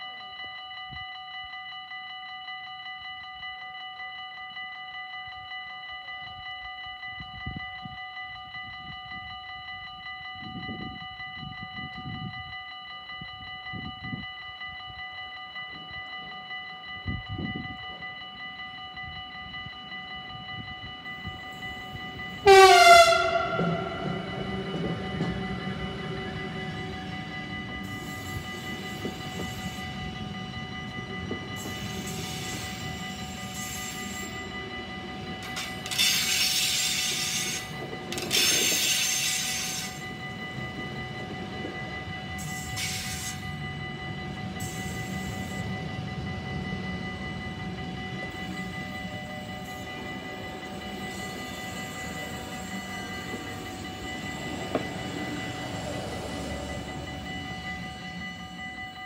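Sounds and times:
train wheels rumbling and clicking: 19.5s - 58.8s
locomotive horn blast: 22.4s - 24.9s.

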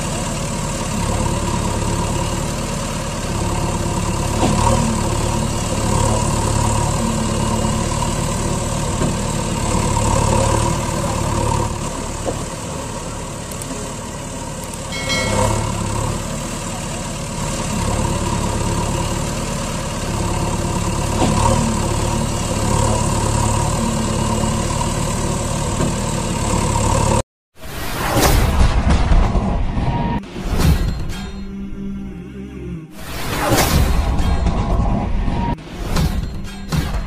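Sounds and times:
truck engine idling: 0.0s - 27.2s
short high-pitched tone: 14.9s - 16.1s.

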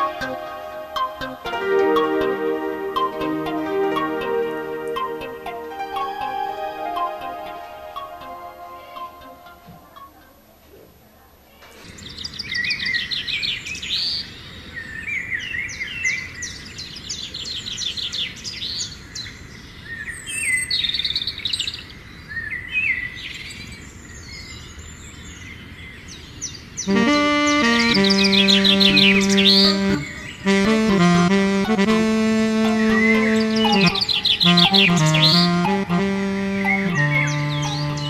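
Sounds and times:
music: 0.0s - 10.1s, 26.9s - 38.0s
outdoor background hiss: 0.0s - 22.4s, 23.0s - 38.0s
birds chirping and singing: 26.9s - 30.5s, 32.8s - 38.0s.

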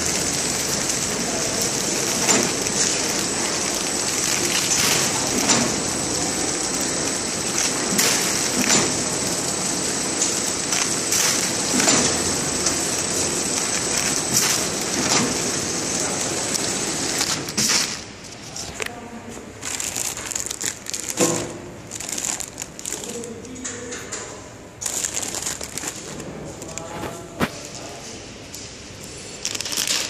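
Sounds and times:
high machine whine: 0.0s - 17.5s
packing machine running: 0.0s - 18.7s, 19.5s - 27.8s, 29.1s - 30.0s
plastic bags crinkling: 0.0s - 23.9s, 24.8s - 27.8s, 29.3s - 30.0s.

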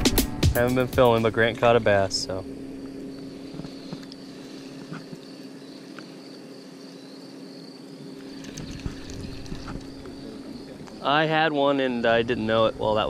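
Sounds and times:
steady low hum: 0.0s - 13.0s
insect chirring: 0.7s - 13.0s
fishing tackle clicks: 8.2s - 10.2s.

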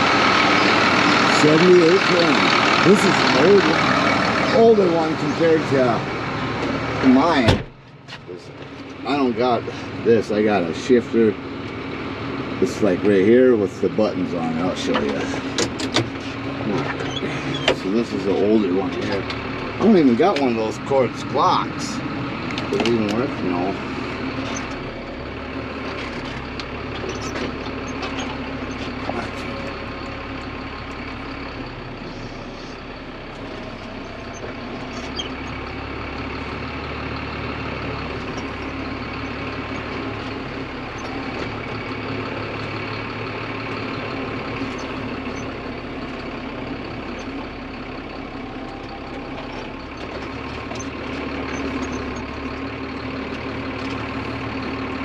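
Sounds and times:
tractor diesel engine idling: 0.0s - 55.0s.

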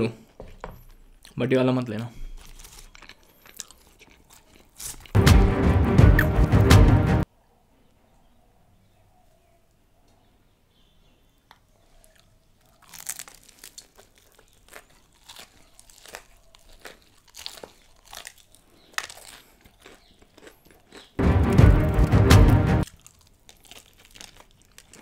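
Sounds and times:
chewing: 0.2s - 5.2s, 11.5s - 21.2s, 22.8s - 25.0s
crunching fried chicken: 0.9s - 5.2s, 11.9s - 22.2s, 22.8s - 25.0s
loud music: 5.2s - 7.2s, 21.2s - 22.8s.

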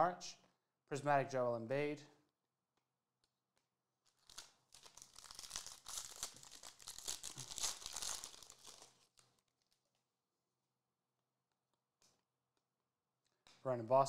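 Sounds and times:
foil wrapper tearing and crinkling: 4.0s - 9.8s.

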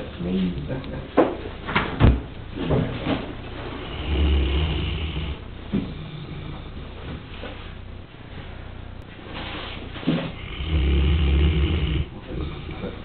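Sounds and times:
dog snoring: 3.5s - 7.0s, 10.0s - 13.0s.

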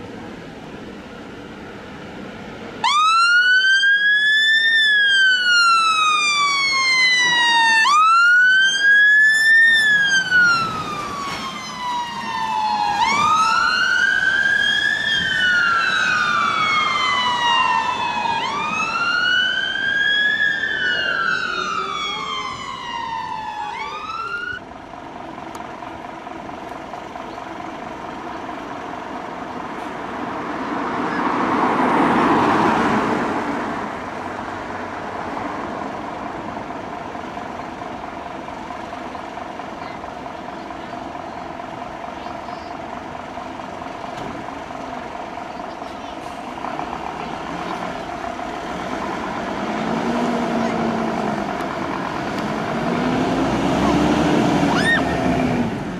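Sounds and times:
engine and traffic noise: 0.0s - 55.9s
fire engine siren wailing: 2.8s - 24.7s, 36.7s - 55.9s.

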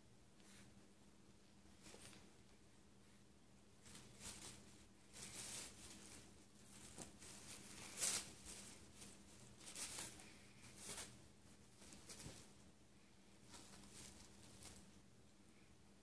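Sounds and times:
tissue paper crinkling: 3.8s - 12.6s, 13.4s - 15.0s.

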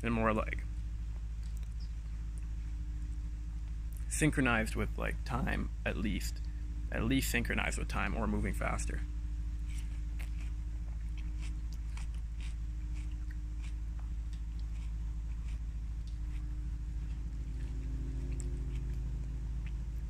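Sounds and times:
steady low hum: 0.0s - 20.0s
person chewing fruit: 1.2s - 2.8s, 9.5s - 20.0s.

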